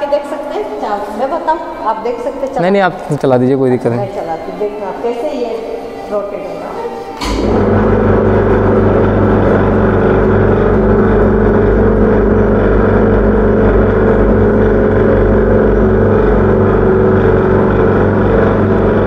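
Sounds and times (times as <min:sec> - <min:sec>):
electric motor humming: 0:05.6 - 0:19.0.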